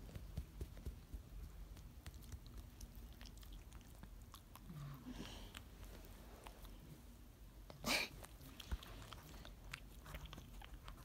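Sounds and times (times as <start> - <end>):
dog chewing fabric: 0.0 - 4.9, 8.2 - 11.0.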